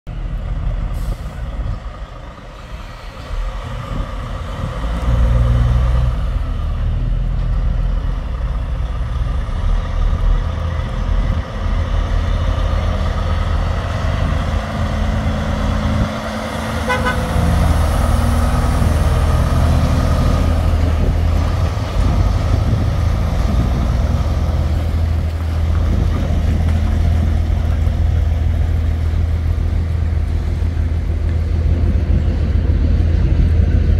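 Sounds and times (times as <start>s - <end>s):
heavy diesel truck engine: 0.1s - 33.9s
short truck horn toot: 16.8s - 17.4s.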